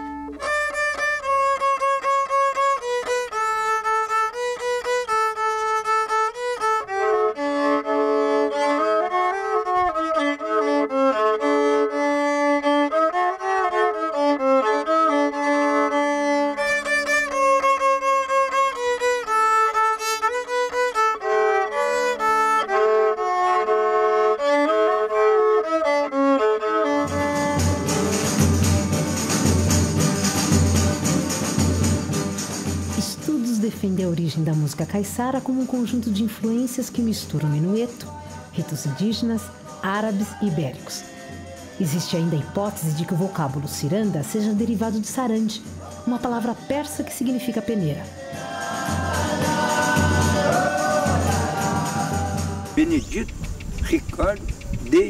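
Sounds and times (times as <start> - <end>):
bowed fiddle melody: 0.0 - 55.0
strummed guitars ensemble: 26.8 - 33.0, 48.1 - 52.9
jingling percussion: 27.1 - 55.0.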